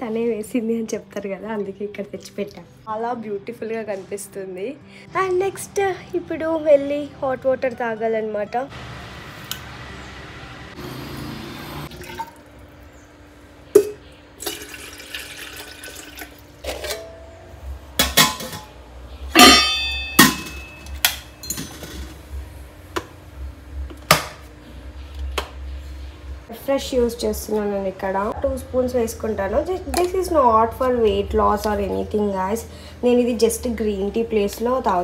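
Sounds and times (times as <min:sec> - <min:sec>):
lids and kettle clattering: 0:18.0 - 0:18.8
ringing metallic clang: 0:18.0 - 0:22.0.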